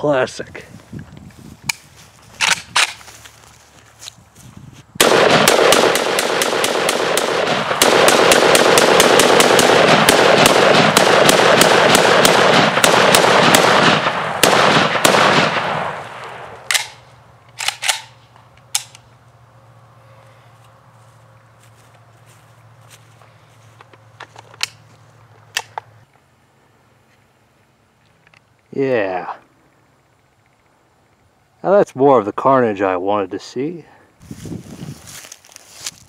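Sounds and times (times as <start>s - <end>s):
rifle rapid shots with echo: 5.0s - 17.0s.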